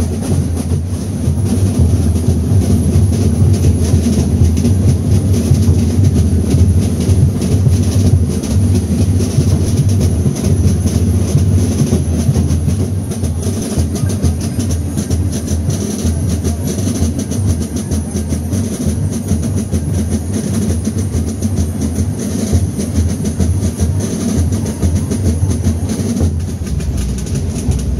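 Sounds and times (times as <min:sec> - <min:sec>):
drums beating fast rhythm: 0:00.0 - 0:27.9.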